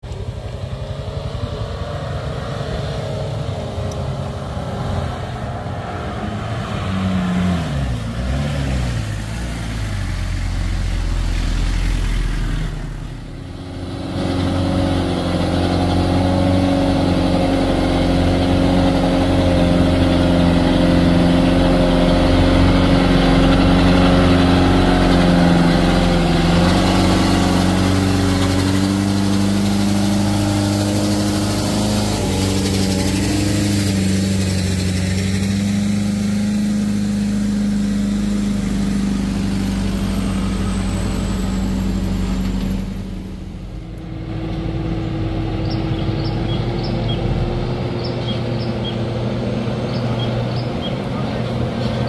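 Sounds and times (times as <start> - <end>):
truck engines under load: 0.0 - 52.0.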